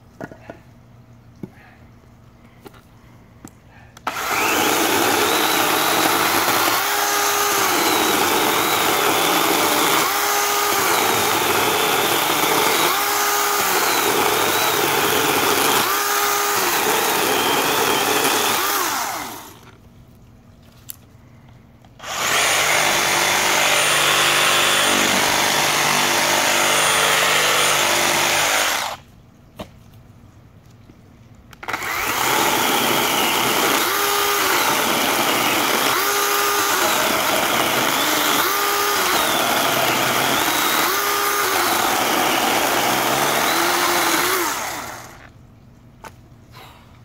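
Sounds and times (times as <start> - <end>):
reciprocating saw cutting: 4.0 - 19.7, 22.0 - 29.0, 31.6 - 45.3
chainsaw cutting log: 4.0 - 19.8, 22.0 - 29.0, 31.6 - 45.3.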